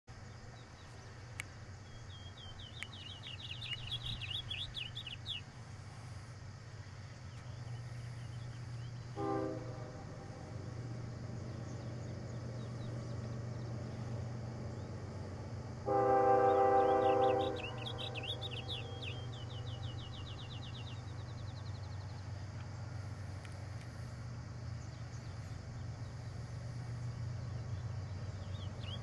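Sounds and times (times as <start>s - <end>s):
low steady rumble: 0.1s - 29.0s
songbird chirping: 0.1s - 29.0s
distant train horn blast: 9.0s - 12.1s, 14.9s - 20.8s.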